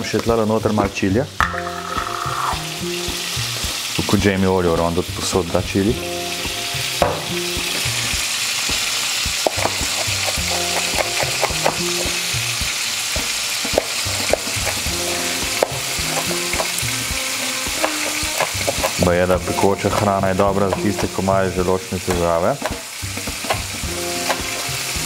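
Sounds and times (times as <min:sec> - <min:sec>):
food sizzling in a pan: 0:00.0 - 0:25.0
knife chopping on wooden board: 0:09.4 - 0:11.9, 0:17.7 - 0:19.0, 0:22.1 - 0:22.8.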